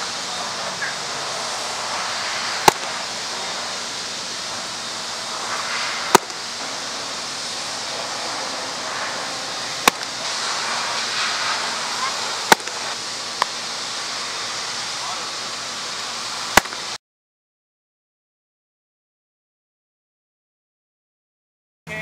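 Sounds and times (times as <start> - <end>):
steady hiss: 0.0 - 17.0
baseball smacking into mitt: 2.6 - 2.9, 6.1 - 6.4, 9.8 - 10.1, 12.5 - 12.8, 16.6 - 16.8.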